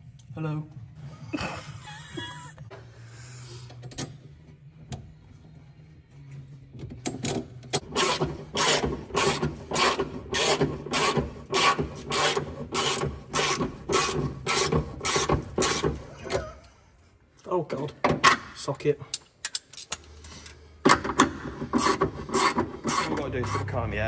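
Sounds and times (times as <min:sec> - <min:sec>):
hand tool stroking metal: 0:21.7 - 0:23.9.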